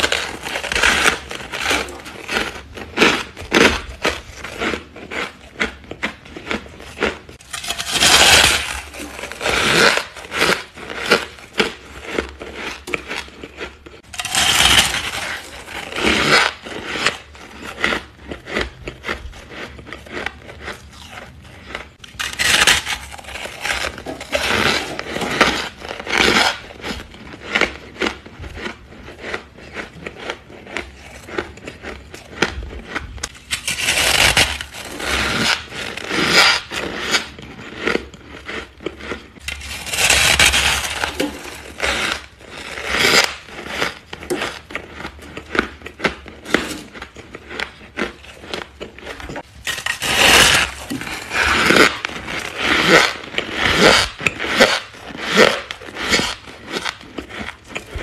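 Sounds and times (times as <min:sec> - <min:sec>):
frost crunching: 0:00.0 - 0:58.0
frost scraping: 0:06.8 - 0:18.6, 0:20.1 - 0:26.9, 0:39.4 - 0:45.0, 0:46.4 - 0:58.0.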